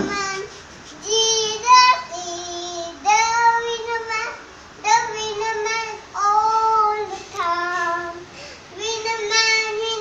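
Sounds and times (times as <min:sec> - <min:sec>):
girl singing: 0:00.0 - 0:10.0.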